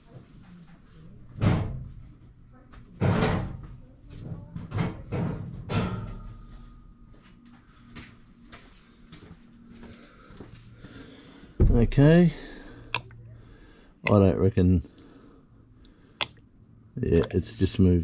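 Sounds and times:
workshop knocks and clatter: 0:01.4 - 0:02.0, 0:02.8 - 0:06.3, 0:11.6 - 0:12.0.

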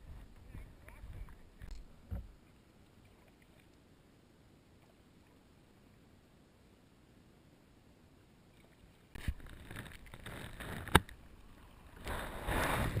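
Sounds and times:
water splashing around kayak: 0:08.5 - 0:13.0.

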